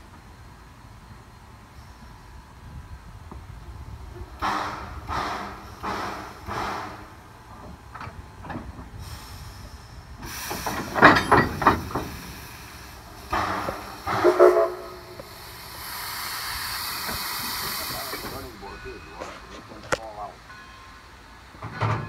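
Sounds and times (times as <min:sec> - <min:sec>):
steam locomotive chuffs: 0:00.0 - 0:22.0
metallic coupler clanks: 0:10.7 - 0:12.1
steam whistle: 0:13.3 - 0:15.3.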